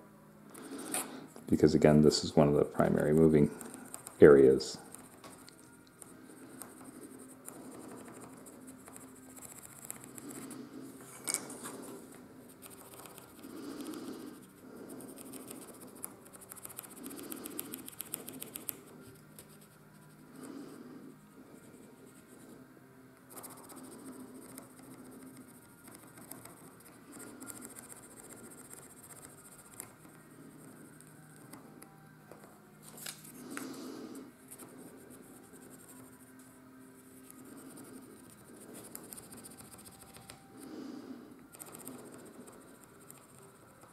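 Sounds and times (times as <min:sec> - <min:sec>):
pencil scratching on wood: 0:03.1 - 0:10.6, 0:11.6 - 0:20.2, 0:23.3 - 0:31.6, 0:37.1 - 0:40.4.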